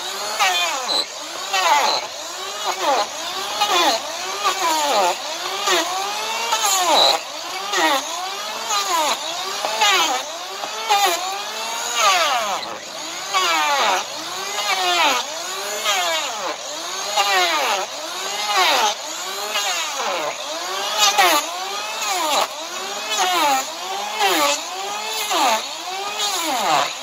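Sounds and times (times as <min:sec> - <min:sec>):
blade rasping hoof: 0:00.0 - 0:15.2
electric planer motor whine: 0:00.0 - 0:27.0.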